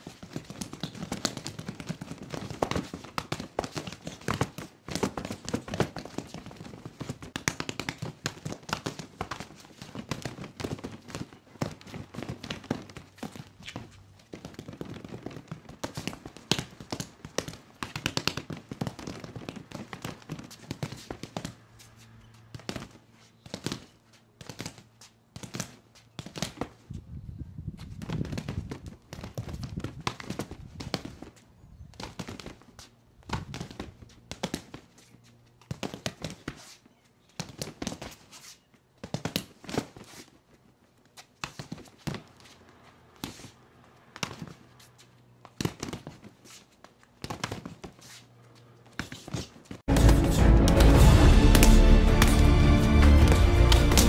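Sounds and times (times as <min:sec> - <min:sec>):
hands striking a padded dummy: 0:00.0 - 0:21.6, 0:39.0 - 0:40.0, 0:47.2 - 0:48.0, 0:49.0 - 0:54.0.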